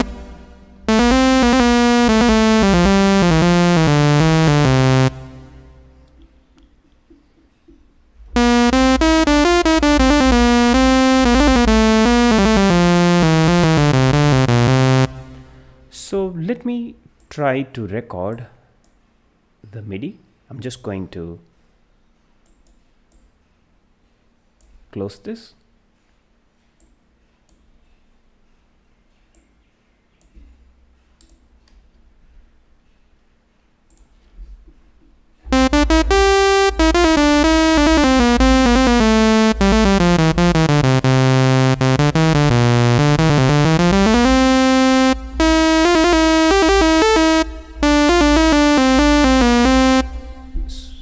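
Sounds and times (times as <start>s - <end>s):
bright synth notes: 0.0s - 0.2s, 0.9s - 5.7s, 8.4s - 15.7s, 35.5s - 50.5s.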